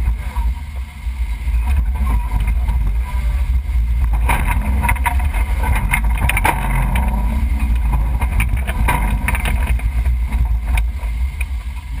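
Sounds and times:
vehicle low rumble: 0:00.0 - 0:12.0
wind buffeting microphone: 0:00.0 - 0:12.0
knocks and rattles: 0:04.0 - 0:11.9.

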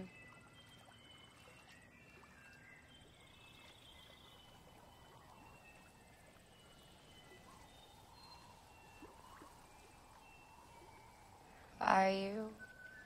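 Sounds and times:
distant bird calls: 0:00.0 - 0:13.0
faint bird trill: 0:00.0 - 0:13.0.

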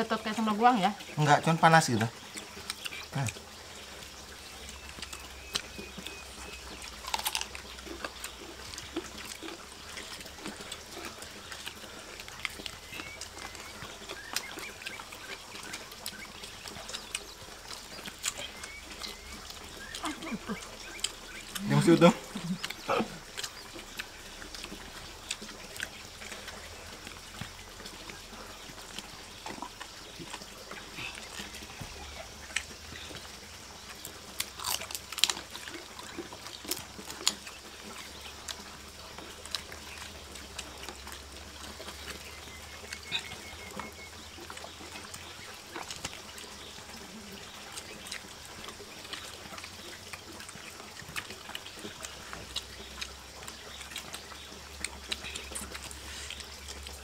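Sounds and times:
running water: 0:00.0 - 0:57.0.

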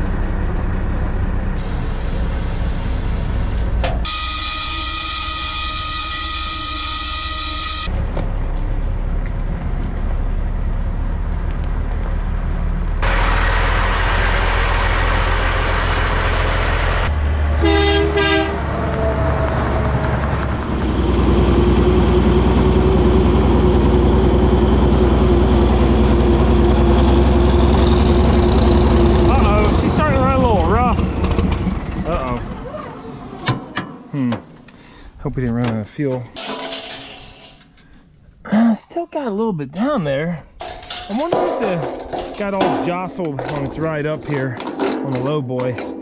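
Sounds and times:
diesel engine running: 0:00.0 - 0:35.1
horn double toot: 0:04.0 - 0:07.9, 0:17.6 - 0:19.6.

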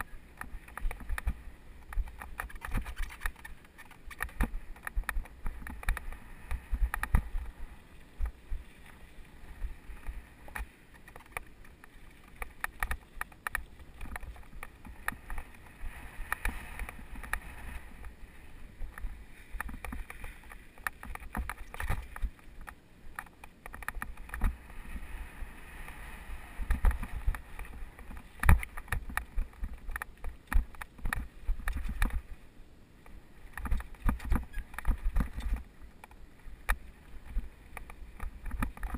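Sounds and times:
mountain bike rattling on trail: 0:00.0 - 0:32.4, 0:33.4 - 0:38.9.

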